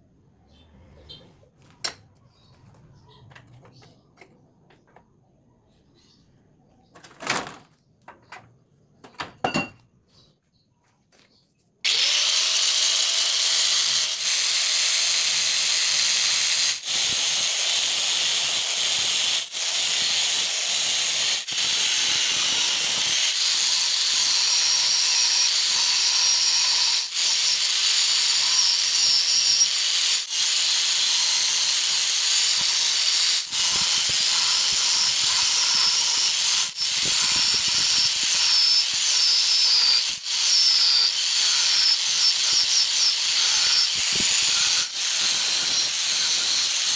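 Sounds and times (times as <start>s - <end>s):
angle grinder grinding steel: 11.8s - 46.9s.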